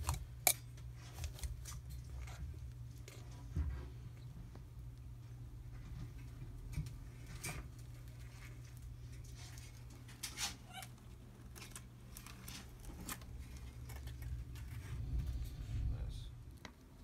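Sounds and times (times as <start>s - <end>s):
steady low hum: 0.0s - 17.0s
claws scrabbling on plastic: 5.8s - 15.3s.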